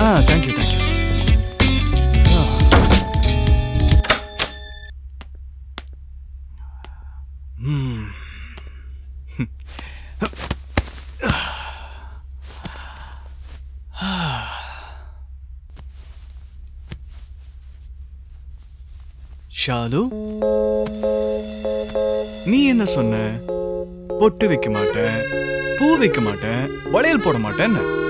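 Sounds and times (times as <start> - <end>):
steady low hum: 2.4 - 27.0
person sighing: 7.6 - 8.8, 11.2 - 13.2, 13.9 - 15.2
bedding rustling: 10.3 - 11.2, 12.4 - 13.8, 15.7 - 19.6.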